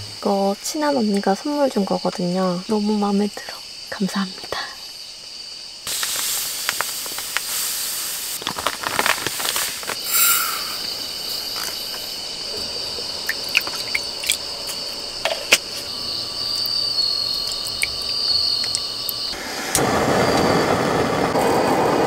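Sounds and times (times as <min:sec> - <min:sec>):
plastic bag rustling: 0:05.9 - 0:10.1
steady high-pitched tone: 0:10.0 - 0:10.9.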